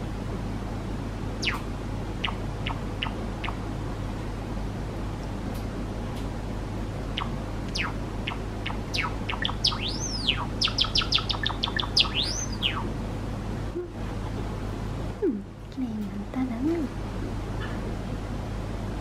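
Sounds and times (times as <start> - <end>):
sparrow singing: 1.4 - 3.6, 7.2 - 12.9.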